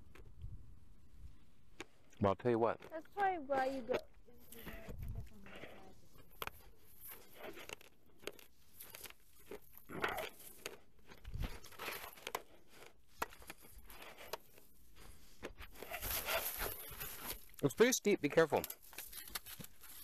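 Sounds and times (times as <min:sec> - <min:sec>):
dry stalks rustling: 0:02.8 - 0:20.0
footsteps crunching through dry grass: 0:15.1 - 0:17.8.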